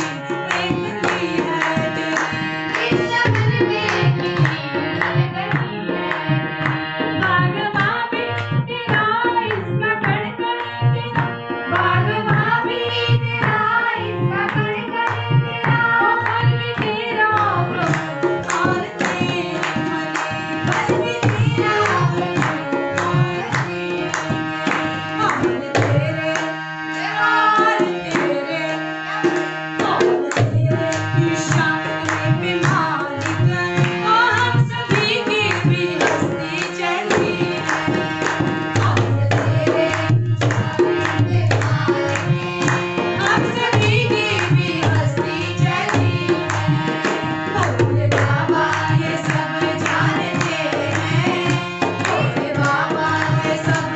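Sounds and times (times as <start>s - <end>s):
woman singing: 0.0s - 6.1s, 7.1s - 53.9s
harmonium chords: 0.0s - 53.9s.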